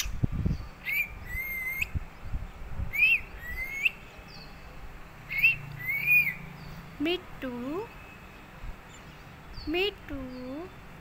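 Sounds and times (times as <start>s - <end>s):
parakeet whistled calls: 0.8s - 2.0s, 2.9s - 4.0s, 5.3s - 6.4s.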